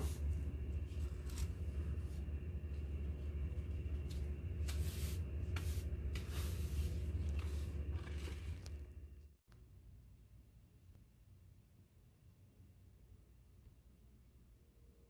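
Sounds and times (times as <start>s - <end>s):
steady low hum: 0.0s - 15.0s
scrub brush scraping floor tiles: 2.9s - 8.8s.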